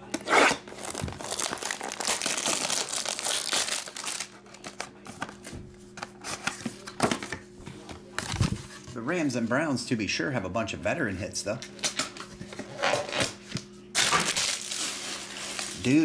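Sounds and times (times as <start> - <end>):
plastic wrap crinkling: 0.7 - 4.8, 14.0 - 16.0
knife slitting shrink wrap: 14.0 - 16.0.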